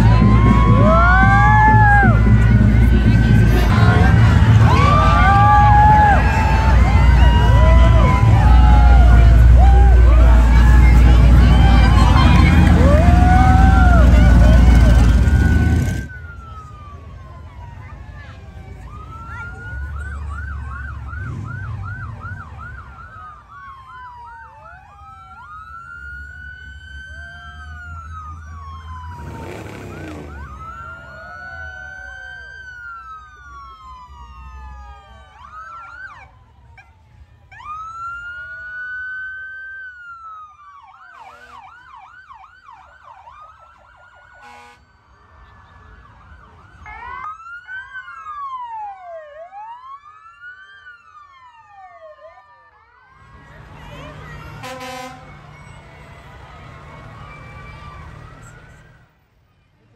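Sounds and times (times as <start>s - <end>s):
engine rumble: 0.0s - 35.6s, 53.2s - 59.4s
emergency vehicle sirens: 0.0s - 59.9s.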